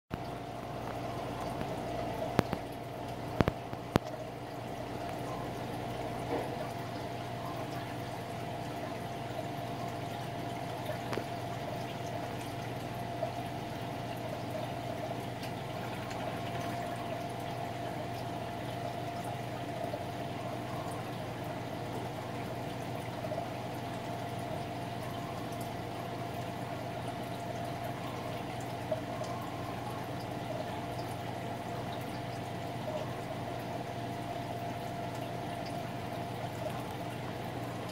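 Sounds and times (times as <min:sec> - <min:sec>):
steady hum: 0:00.1 - 0:37.9
water trickling: 0:00.1 - 0:37.9
faint ticks: 0:00.7 - 0:04.2.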